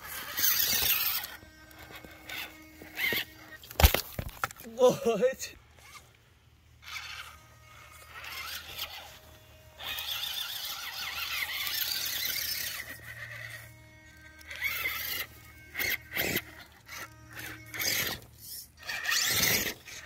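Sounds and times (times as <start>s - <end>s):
electric motor and gears whining: 0.0s - 20.0s
tyres scraping and knocking on stone: 2.9s - 4.7s.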